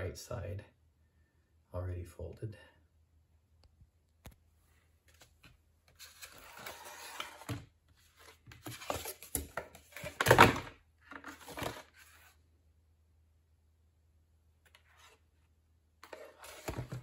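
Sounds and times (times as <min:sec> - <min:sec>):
foam board rustling and scraping: 0:06.0 - 0:10.2.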